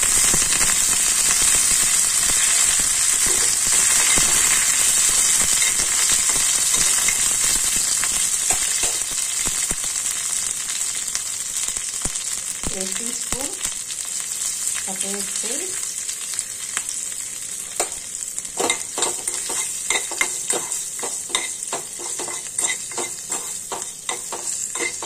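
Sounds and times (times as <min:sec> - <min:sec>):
leaves sizzling in hot oil: 0:00.0 - 0:25.0
oil crackles: 0:00.0 - 0:25.0
spatula stirring: 0:18.6 - 0:25.0.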